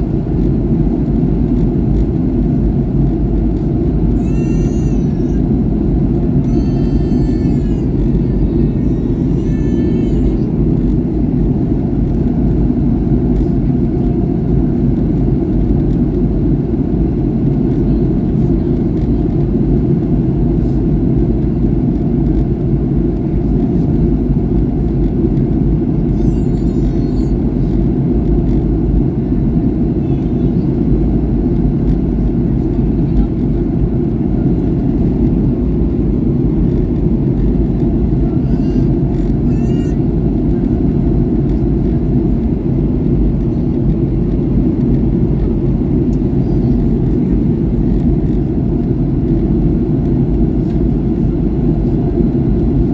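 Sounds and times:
airplane cabin engine roar: 0.0s - 52.9s
high-pitched voice: 38.2s - 40.0s.

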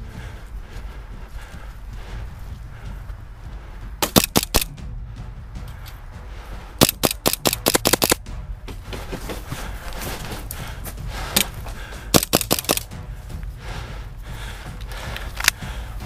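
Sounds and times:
airsoft pistol shots: 4.0s - 4.7s, 6.8s - 8.2s, 12.2s - 12.8s.

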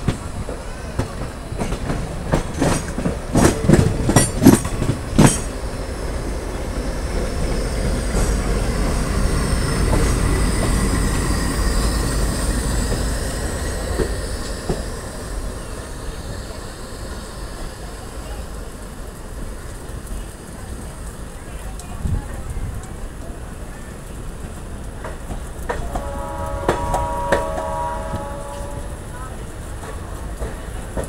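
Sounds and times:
train wheels clattering: 0.0s - 15.8s, 24.4s - 31.0s
train rumble: 0.0s - 31.0s.

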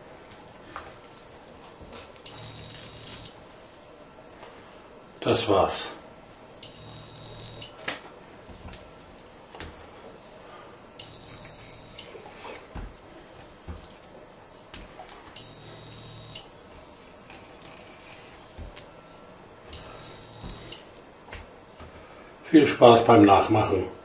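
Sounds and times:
electronic alarm beeping: 2.3s - 3.4s, 6.6s - 7.8s, 11.0s - 12.2s, 15.4s - 16.5s, 19.7s - 20.9s.

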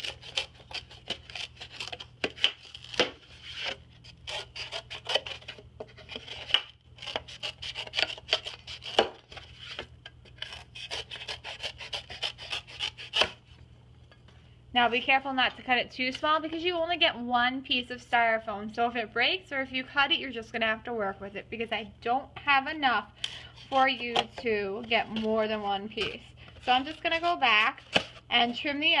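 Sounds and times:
scissors cutting styrofoam: 0.0s - 13.4s, 23.6s - 28.2s.

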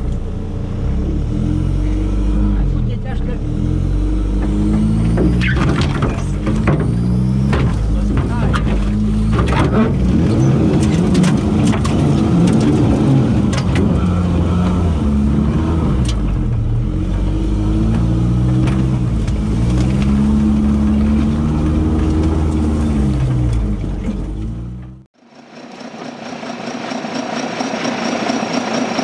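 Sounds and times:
off-road vehicle engine: 0.0s - 29.0s
sharp knocks: 4.3s - 10.1s.

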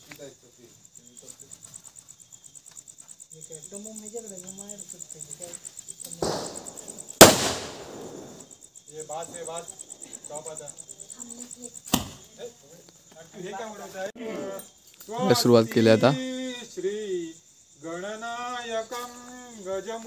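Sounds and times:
crickets chirping: 0.0s - 20.0s
firecracker hissing: 6.0s - 8.6s
firecracker bang: 6.1s - 8.6s.

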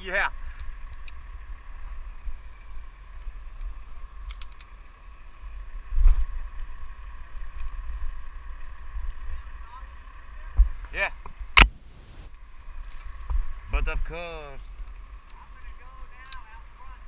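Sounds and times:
mechanical hum with whine: 0.0s - 17.0s
sharp thump: 11.6s - 12.3s.

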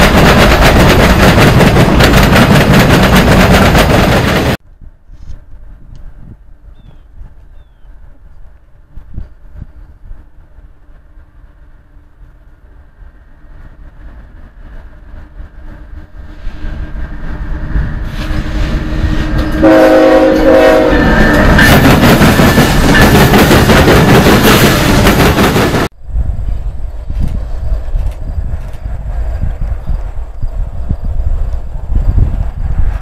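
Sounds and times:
rail clatter: 0.0s - 4.6s, 13.9s - 25.9s
freight train passing: 0.0s - 33.0s
train horn blasts: 17.9s - 21.8s.

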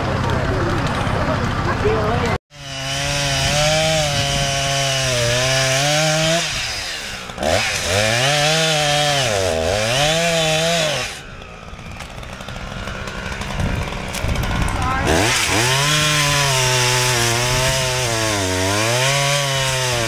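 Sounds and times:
chainsaw cutting tree trunk: 2.5s - 20.0s.

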